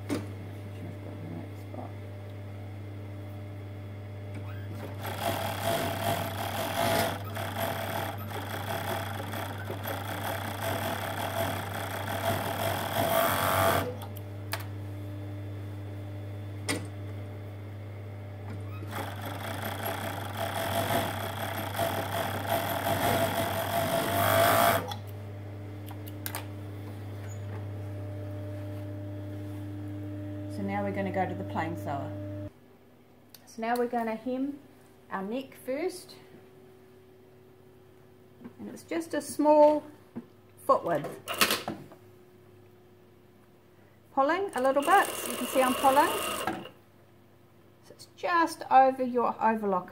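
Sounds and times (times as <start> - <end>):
steady low hum: 0.0 - 7.2, 13.9 - 20.9, 24.9 - 40.2
overlocker stitching fabric: 4.7 - 14.0, 18.8 - 25.0.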